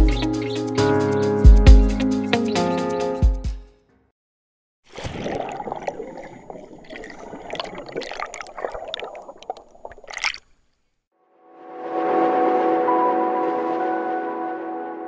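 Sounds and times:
water splashing and gurgling: 4.9s - 10.6s.

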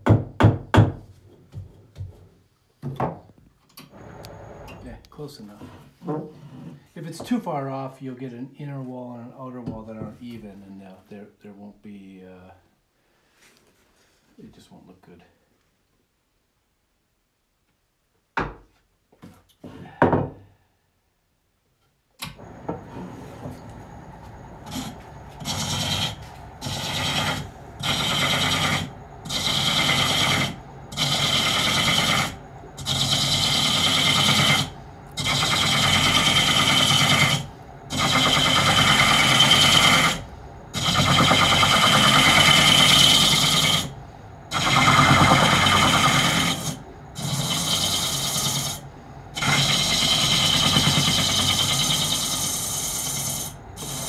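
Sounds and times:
tool scraping wood on lathe: 22.7s - 54.0s.

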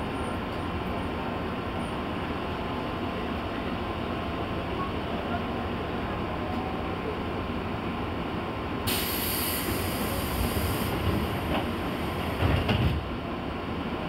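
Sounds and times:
train low rumble: 0.0s - 14.0s
high air hiss: 8.9s - 12.4s.

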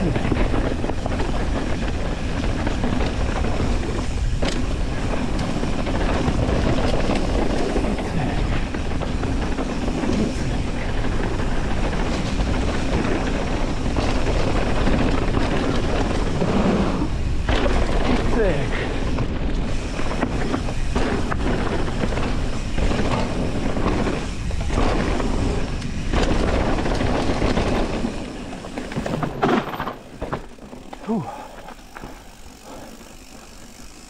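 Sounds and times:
bike knocking over bumps: 0.0s - 34.0s
mountain bike tyres on dirt: 0.0s - 34.0s.

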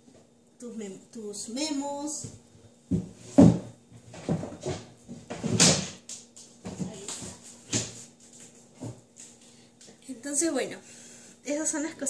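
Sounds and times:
objects knocking and clattering: 2.9s - 8.0s.

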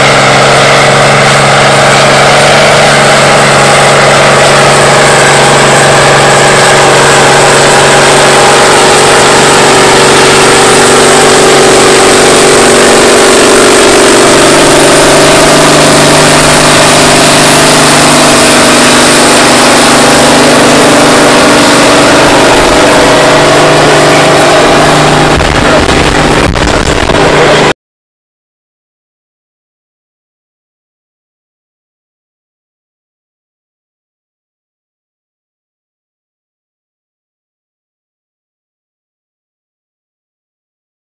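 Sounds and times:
tractor diesel engine under load: 0.0s - 27.7s.

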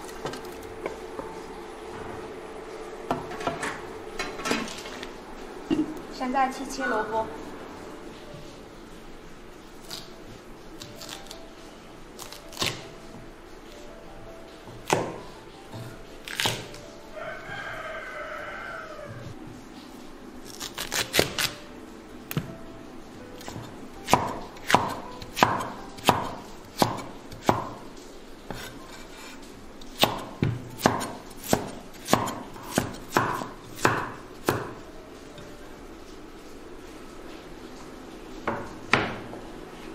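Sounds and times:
rooster crowing: 17.1s - 19.4s
cleaver chopping on wooden board: 23.5s - 27.7s, 30.0s - 34.7s.

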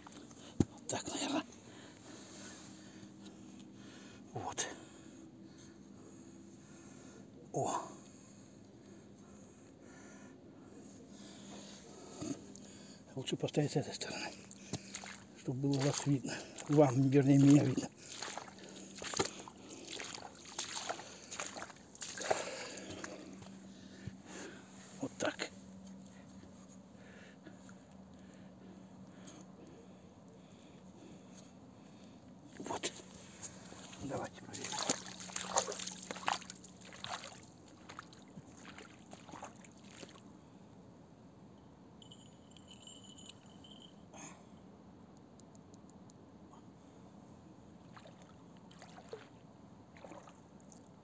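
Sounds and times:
sloshing scuffing noises: 14.6s - 23.6s, 32.8s - 40.2s.

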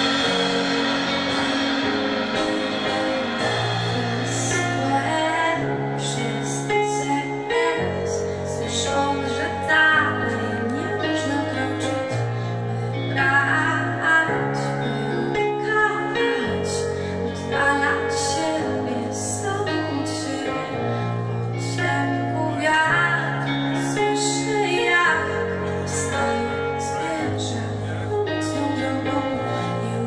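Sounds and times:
drums with cymbal strokes: 0.0s - 9.6s
electric guitar: 0.0s - 30.0s
low bass notes: 0.0s - 30.0s
woman singing: 2.8s - 30.0s.

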